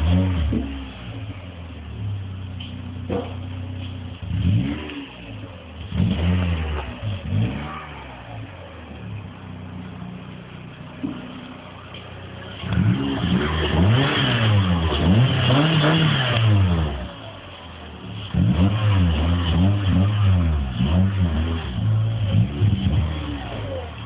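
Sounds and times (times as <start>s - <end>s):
car engine idling and revving: 0.0s - 24.0s.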